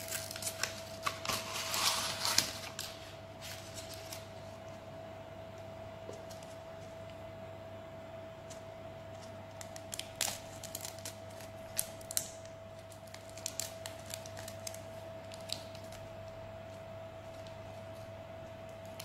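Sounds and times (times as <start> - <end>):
steady faint hum: 0.0 - 19.0
plastic packet crinkling: 9.6 - 16.0.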